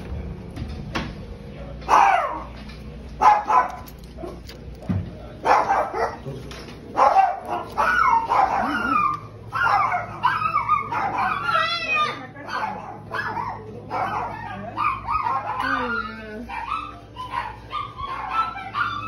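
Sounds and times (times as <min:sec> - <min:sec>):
dog barking and yipping: 0:01.9 - 0:02.5, 0:03.2 - 0:04.5, 0:05.4 - 0:06.2, 0:06.9 - 0:19.0.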